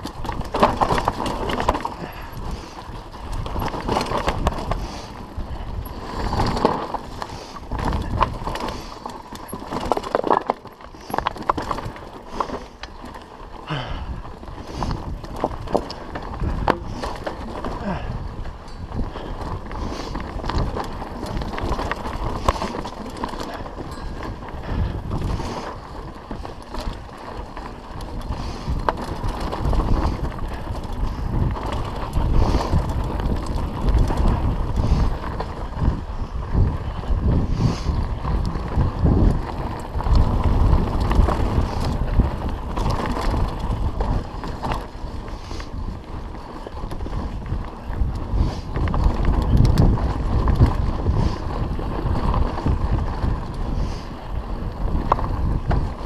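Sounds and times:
wind on microphone: 0.0s - 10.2s, 10.8s - 56.0s
tyres crunching over stones: 0.0s - 36.1s
bike clattering over bumps: 0.0s - 56.0s.

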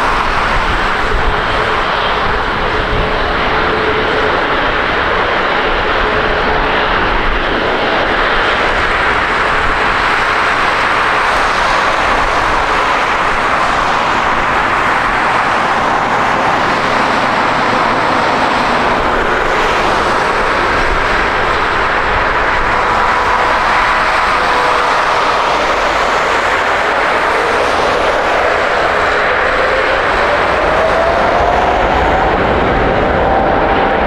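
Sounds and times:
jet engine rush: 0.0s - 34.0s
jet engine whine: 0.0s - 34.0s.

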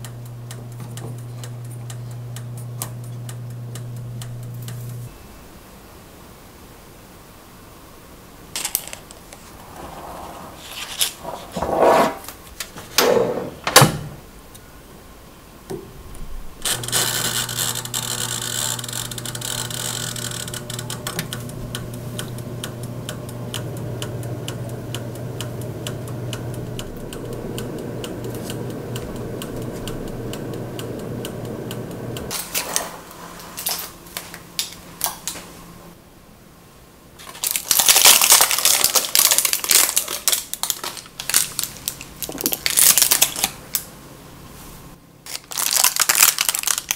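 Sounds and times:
dial timer ticking: 0.0s - 5.1s, 16.7s - 32.3s
toaster oven humming: 0.0s - 5.6s, 16.0s - 35.4s, 37.2s - 44.6s
clicks: 16.6s - 32.3s.

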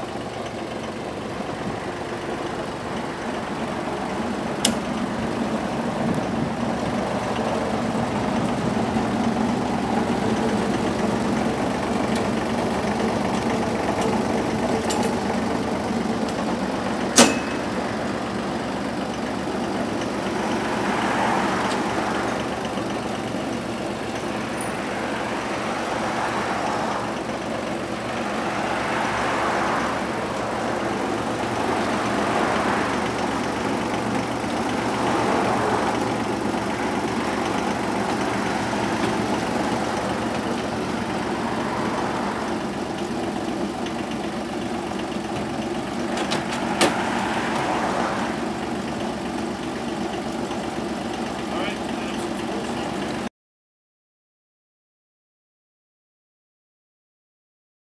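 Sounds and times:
diesel engine idling: 0.0s - 53.3s
sharp click: 4.6s - 4.8s.

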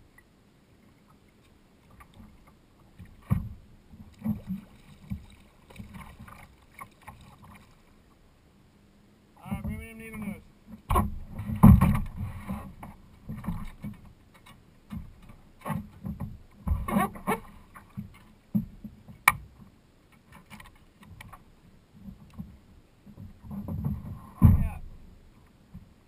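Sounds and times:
water slapping against hull: 1.1s - 8.0s, 9.6s - 19.6s.

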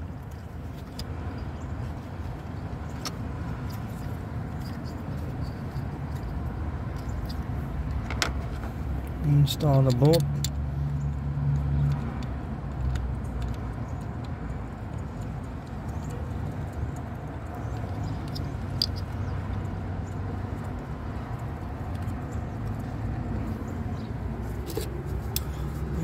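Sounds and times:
metallic clicks of hand tools: 9.8s - 10.6s.

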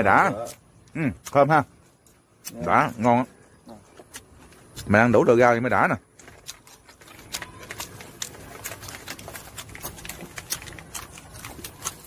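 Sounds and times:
rice paper crackling: 6.2s - 12.0s.

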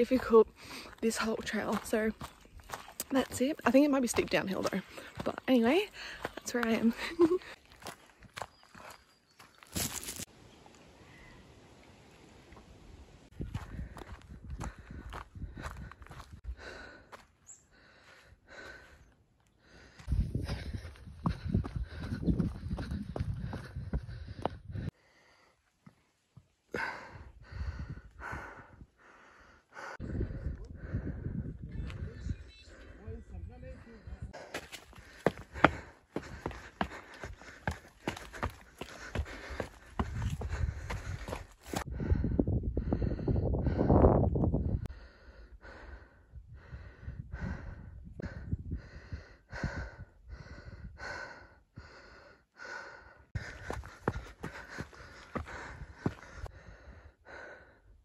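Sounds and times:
heavy rhythmic breathing: 26.7s - 31.4s, 34.4s - 44.0s, 44.7s - 58.0s
noisy breathing: 26.8s - 31.5s.

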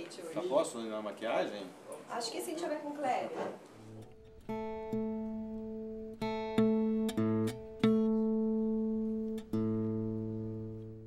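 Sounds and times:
guitar strings plucked: 3.9s - 11.0s.

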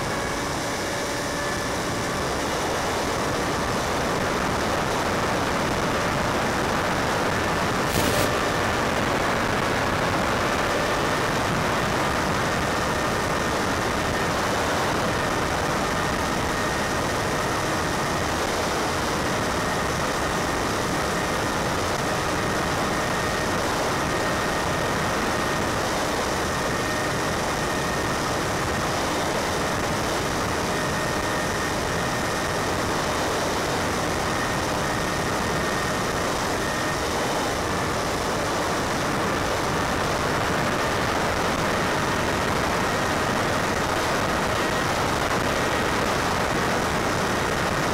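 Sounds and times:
steady rushing hiss: 7.8s - 9.1s.

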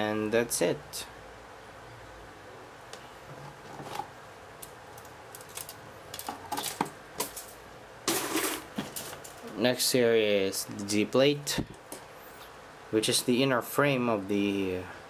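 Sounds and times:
plastic clattering into cardboard box: 5.4s - 7.5s, 8.1s - 9.5s.

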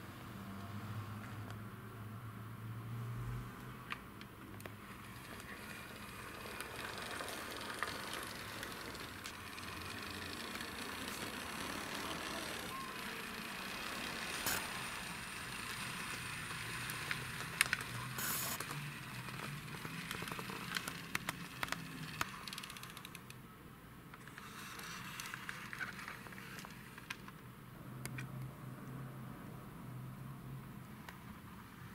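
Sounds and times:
toy car rolling on wooden floor: 4.8s - 23.4s, 24.2s - 27.3s.

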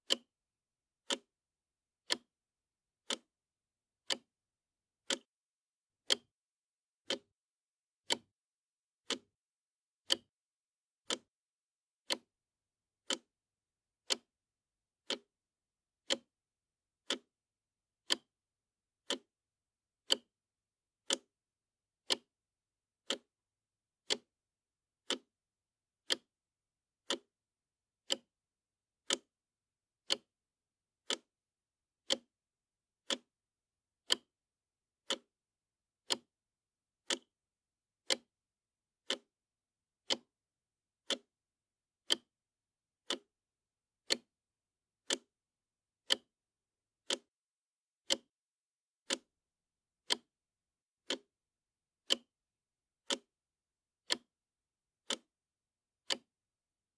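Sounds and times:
wall clock ticking: 0.0s - 0.3s, 1.0s - 1.3s, 2.0s - 2.3s, 3.0s - 3.3s, 4.0s - 4.3s, 5.0s - 5.3s, 6.0s - 6.3s, 7.0s - 7.3s, 8.0s - 8.2s, 9.0s - 9.3s, 10.0s - 10.3s, 11.0s - 11.3s, 12.0s - 12.3s, 13.0s - 13.3s, 14.0s - 14.3s, 15.0s - 15.3s, 16.0s - 16.3s, 17.0s - 17.3s, 18.0s - 18.3s, 19.0s - 19.3s, 20.0s - 20.3s, 21.0s - 21.3s, 22.0s - 22.3s, 23.0s - 23.3s, 24.0s - 24.3s, 25.0s - 25.3s, 26.0s - 26.3s, 27.0s - 27.3s, 28.0s - 28.3s, 29.0s - 29.3s, 30.0s - 30.3s, 31.0s - 31.3s, 32.0s - 32.3s, 33.0s - 33.3s, 34.0s - 34.3s, 35.0s - 35.3s, 36.0s - 36.3s, 37.0s - 37.3s, 38.0s - 38.3s, 39.0s - 39.3s, 40.0s - 40.3s, 41.0s - 41.3s, 42.0s - 42.3s, 43.0s - 43.3s, 44.0s - 44.3s, 45.0s - 45.3s, 46.0s - 46.3s, 47.0s - 47.3s, 48.0s - 48.3s, 49.0s - 49.3s, 50.0s - 50.3s, 51.0s - 51.3s, 52.0s - 52.3s, 53.0s - 53.3s, 54.0s - 54.3s, 55.0s - 55.3s, 56.0s - 56.3s.

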